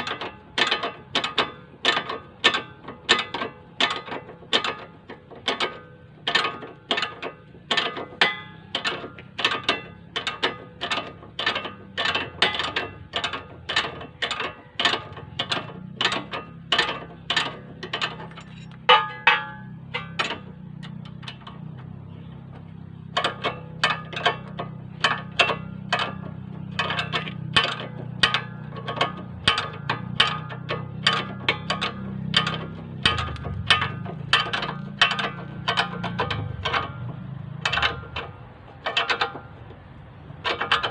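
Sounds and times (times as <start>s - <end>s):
ratcheting wrench clicking: 23.1s - 40.9s.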